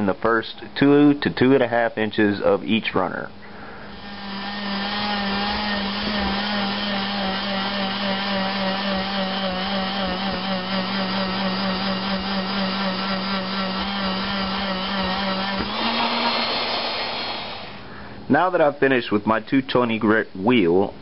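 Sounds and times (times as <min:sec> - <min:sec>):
rotary tool grinding metal: 0:03.9 - 0:17.7.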